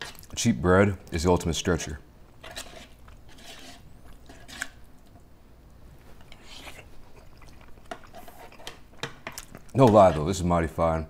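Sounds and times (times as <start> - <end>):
soft chewing and mouth sounds: 0.0 - 1.3, 2.3 - 10.4
plastic spoon scraping a tray: 2.4 - 4.8.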